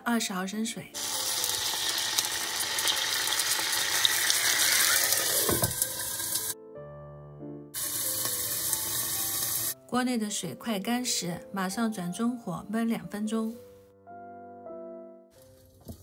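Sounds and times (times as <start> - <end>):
water sizzling in hot oil: 1.0 - 6.6, 7.8 - 9.8.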